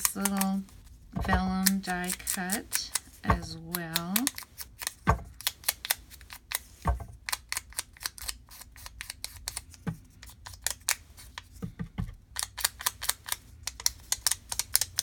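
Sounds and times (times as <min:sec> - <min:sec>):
dull knocks: 0:05.1 - 0:05.3.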